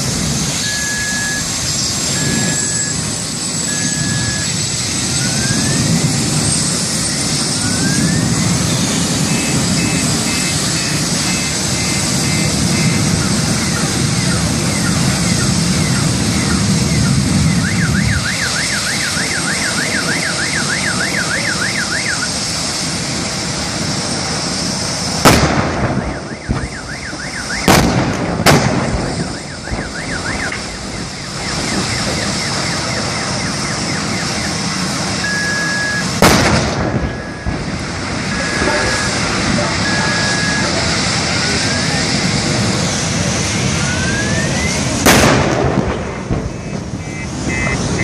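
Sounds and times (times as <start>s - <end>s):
steady rush of noise: 0.0s - 48.0s
car alarm warbling: 0.6s - 6.0s, 7.0s - 22.4s, 25.9s - 27.7s, 29.0s - 36.2s, 37.1s - 37.7s, 38.3s - 42.1s, 43.6s - 44.9s, 46.5s - 48.0s
gas cylinders exploding: 25.1s - 33.1s, 36.0s - 39.7s, 44.2s - 47.9s.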